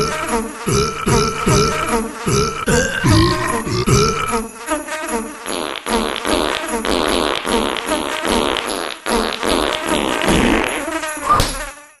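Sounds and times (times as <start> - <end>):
cartoon fart sound effects: 5.5 - 11.7.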